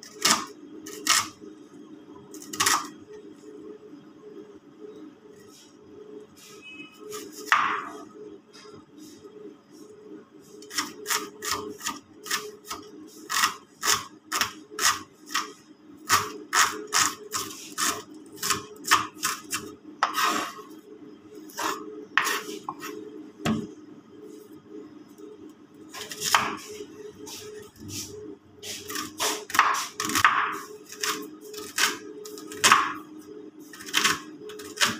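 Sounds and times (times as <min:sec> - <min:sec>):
knife chopping on cutting board: 0:26.0 - 0:26.7, 0:28.8 - 0:33.0.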